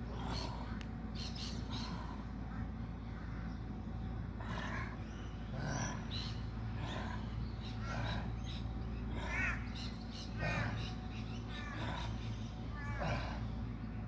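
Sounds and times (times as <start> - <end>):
low background rumble: 0.0 - 14.0
crow cawing: 9.2 - 13.5.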